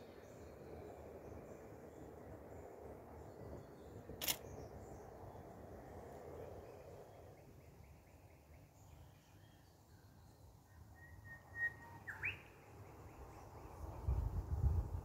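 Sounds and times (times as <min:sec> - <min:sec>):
outdoor background noise: 0:00.0 - 0:15.0
camera shutter click: 0:04.2 - 0:04.4.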